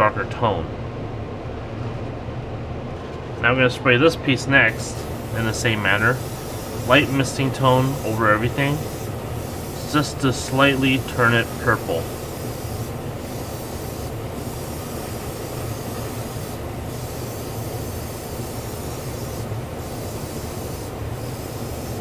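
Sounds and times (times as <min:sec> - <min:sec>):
extractor fan running: 0:00.0 - 0:22.0
airbrush spraying hiss: 0:04.7 - 0:22.0.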